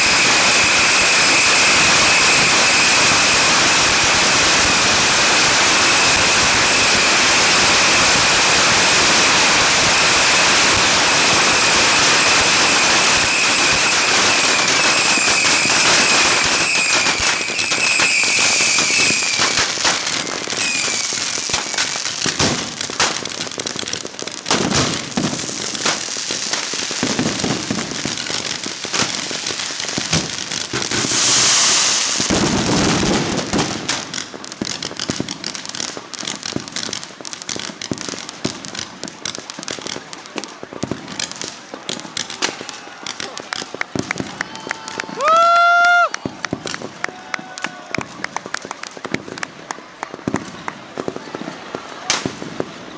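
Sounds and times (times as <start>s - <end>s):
high whistle: 0.0s - 3.4s, 11.6s - 22.0s
whooshing burst of rockets: 0.0s - 44.4s
firework bangs and cracks: 0.0s - 52.9s
rockets hissing and crackling: 0.0s - 52.9s.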